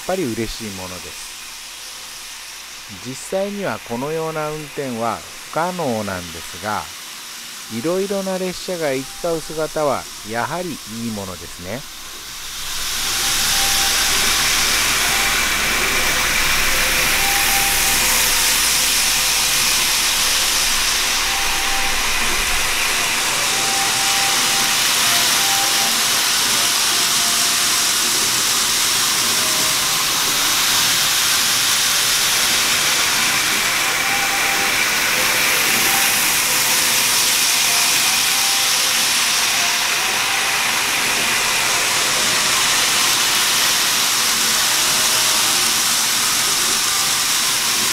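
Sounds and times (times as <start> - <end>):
model train wheels hissing on rails: 0.0 - 47.9
small motors whining: 6.5 - 47.9
low hum: 8.6 - 25.0.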